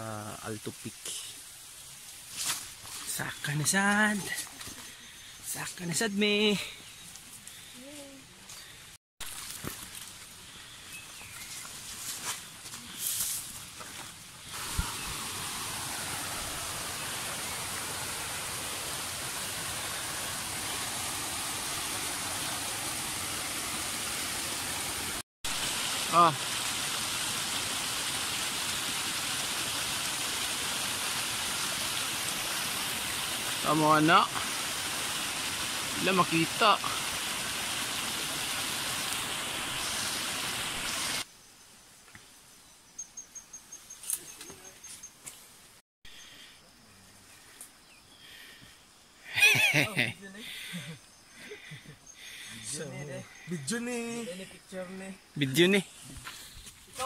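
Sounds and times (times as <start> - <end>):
stream running over rocks: 11.5 - 41.3.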